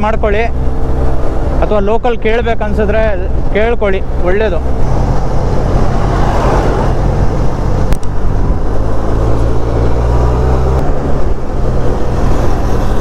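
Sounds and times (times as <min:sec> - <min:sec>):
road and wind noise: 0:00.0 - 0:13.0.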